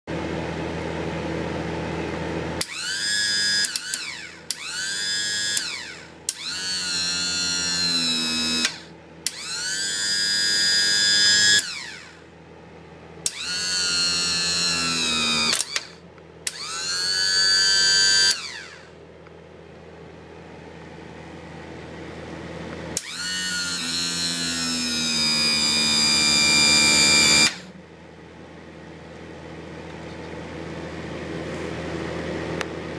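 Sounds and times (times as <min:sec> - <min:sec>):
hydraulic pump motor whining: 0:02.6 - 0:12.3, 0:13.2 - 0:19.0, 0:22.9 - 0:27.8.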